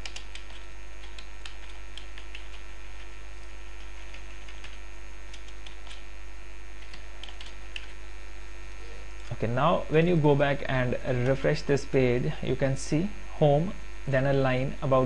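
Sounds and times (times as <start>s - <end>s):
keyboard keys typing: 0.0s - 2.7s, 3.8s - 6.0s, 6.8s - 7.9s
electrical mains hum: 0.0s - 15.0s.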